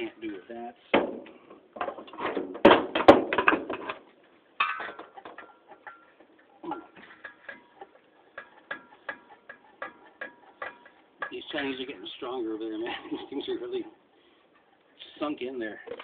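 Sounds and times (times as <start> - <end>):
metal clanks on fan housing: 1.0 - 4.0, 4.6 - 12.0.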